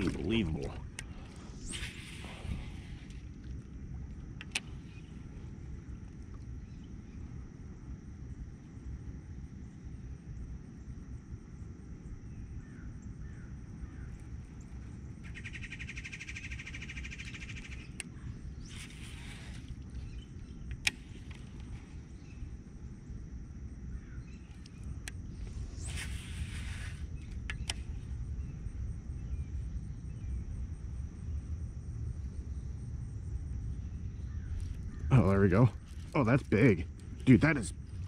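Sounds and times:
low rumble: 0.0 - 9.4
sharp click: 27.4 - 27.9.

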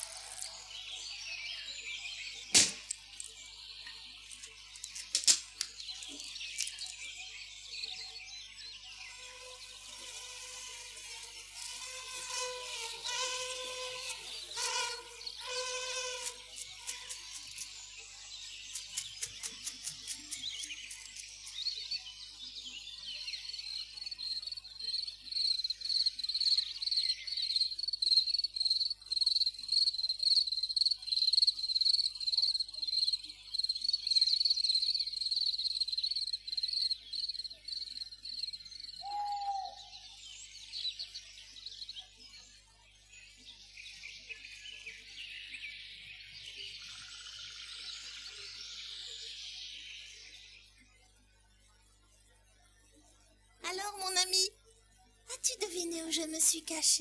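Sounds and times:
cricket chirping: 24.0 - 39.7.

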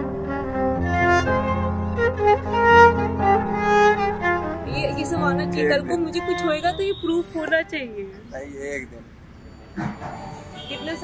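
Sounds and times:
slow string music: 0.0 - 7.8.

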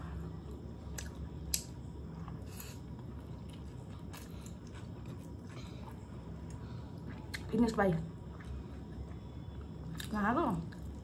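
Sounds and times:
people chewing and slurping noodles: 0.0 - 7.5.

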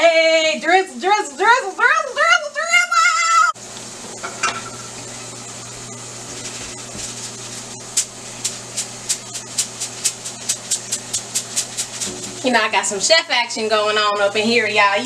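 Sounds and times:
rice rattling in a strainer: 6.4 - 12.5.

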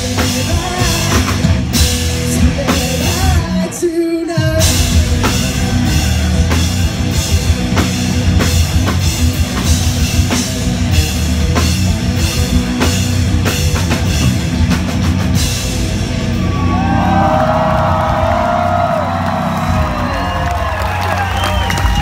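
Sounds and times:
distorted electric guitars: 0.0 - 20.8
live rock band playing: 0.0 - 22.0
pounding drum kit: 0.0 - 22.0
crowd cheering and whistling: 4.4 - 8.5, 16.1 - 22.0.

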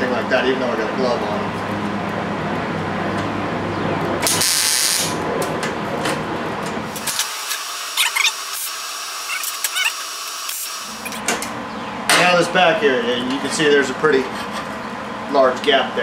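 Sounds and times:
welder crackling hiss: 7.1 - 11.1.

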